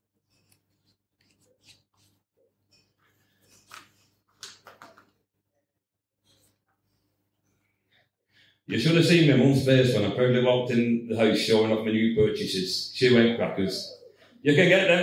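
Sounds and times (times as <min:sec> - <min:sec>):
paper rustling: 0:03.3 - 0:05.2.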